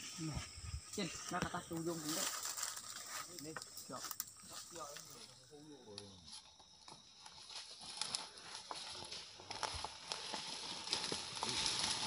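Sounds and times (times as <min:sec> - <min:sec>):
footsteps through dry leaves: 0:01.8 - 0:04.9, 0:07.4 - 0:12.0
twigs snapping: 0:06.9 - 0:12.0.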